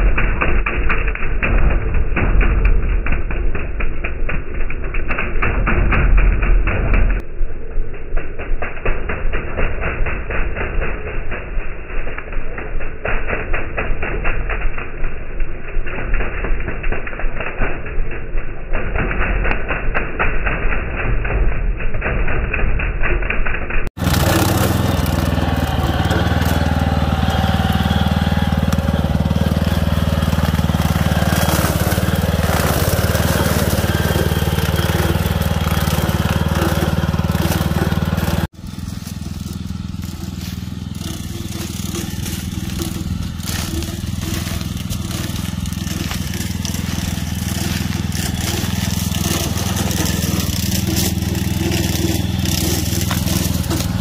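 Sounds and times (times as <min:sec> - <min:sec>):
cutter cutting corn stalks: 0:00.0 - 0:07.2, 0:08.1 - 0:54.0
small engine running: 0:23.8 - 0:54.0.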